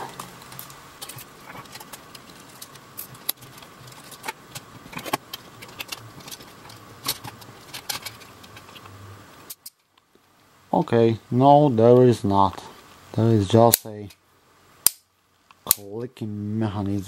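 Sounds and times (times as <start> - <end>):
small plastic parts clicking: 0.4 - 8.9.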